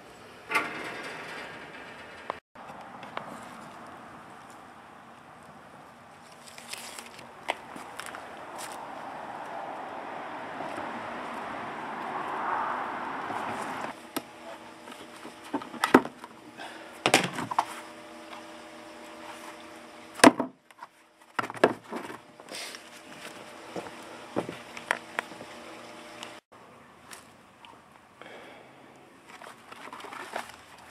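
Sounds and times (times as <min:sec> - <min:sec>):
steady rushing noise: 0:07.6 - 0:14.0.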